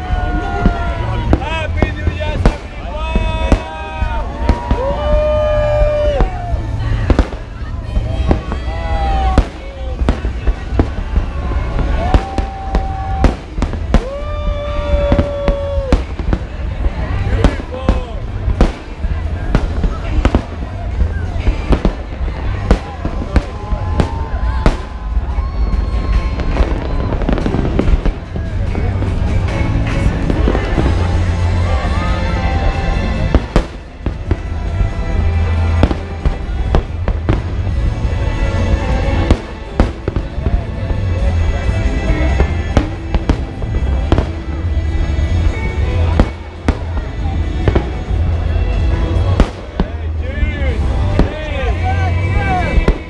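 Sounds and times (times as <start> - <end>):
background music: 0.0 - 53.0
deep rumble: 0.0 - 53.0
fireworks exploding: 0.0 - 53.0.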